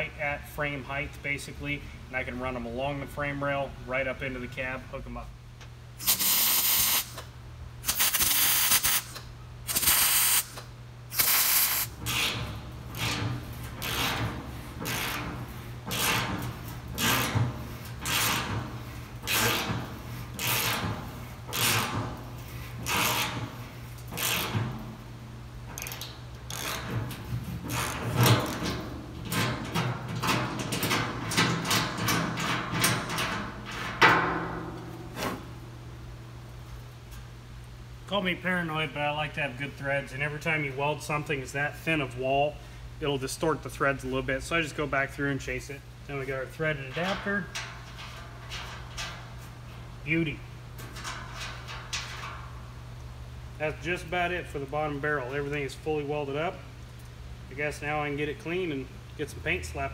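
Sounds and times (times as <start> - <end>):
steady low hum: 0.0 - 59.9
arc welding: 6.0 - 24.7.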